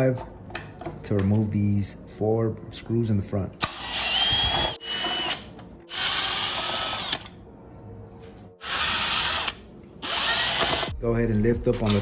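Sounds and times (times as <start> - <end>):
cordless drill whining: 3.6 - 7.3, 8.6 - 10.9.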